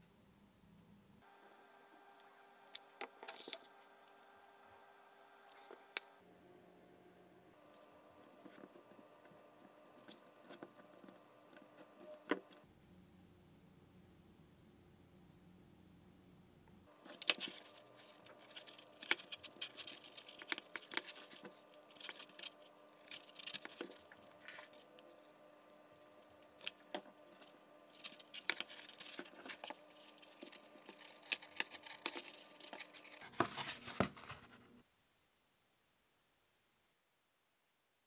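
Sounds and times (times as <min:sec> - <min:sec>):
faint steady hum: 0:00.0 - 0:38.0
clicks and scratches on foam: 0:17.0 - 0:25.1.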